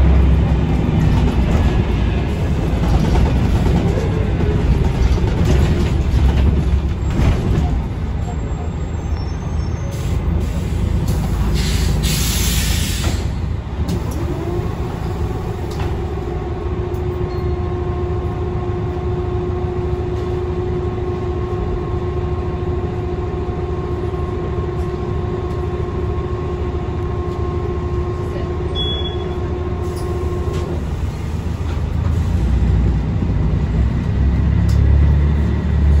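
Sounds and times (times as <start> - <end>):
bus engine whine: 0.0 - 36.0
bus interior low rumble: 0.0 - 36.0
air hiss: 11.6 - 13.3.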